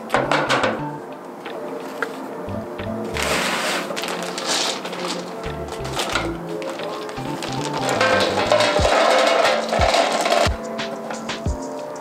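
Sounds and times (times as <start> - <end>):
soft background music: 0.0 - 12.0
plastic bag crinkling: 3.1 - 10.6.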